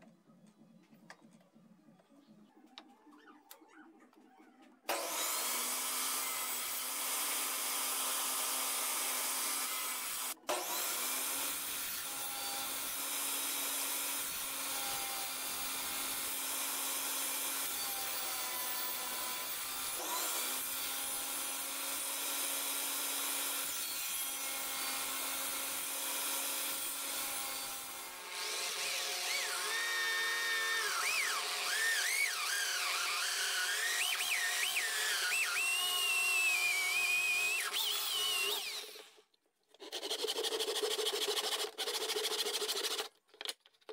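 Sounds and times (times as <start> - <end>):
drill press boring into wood: 4.9 - 39.2
table saw cutting wood: 4.9 - 43.1.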